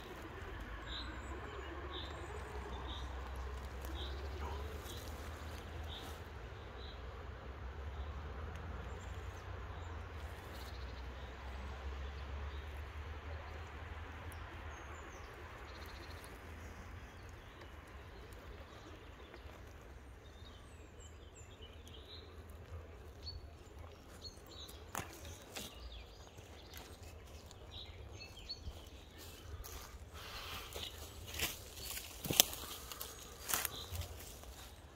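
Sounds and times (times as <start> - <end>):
birds chirping: 0.0 - 7.0, 12.0 - 34.9
twigs cracking underfoot: 3.2 - 6.2, 21.7 - 34.9.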